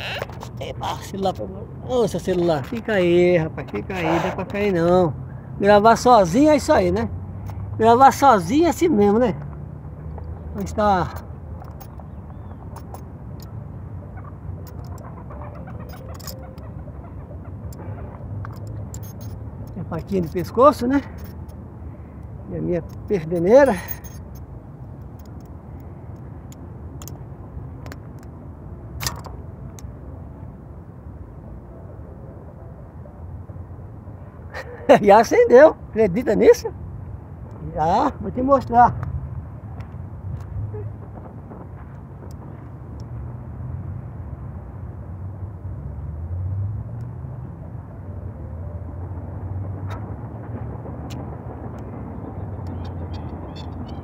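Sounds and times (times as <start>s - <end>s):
wind rumble on microphone: 38.9s - 48.0s.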